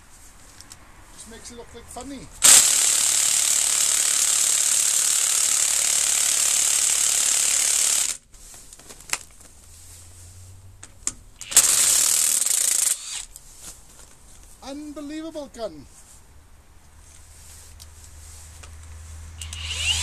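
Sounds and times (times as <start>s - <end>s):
impact wrench hammering: 2.4s - 8.2s
sharp clicks: 19.4s - 20.0s.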